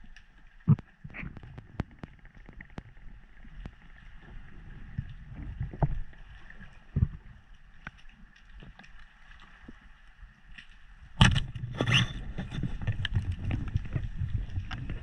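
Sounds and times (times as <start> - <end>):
underwater water rumble: 0.0 - 15.0.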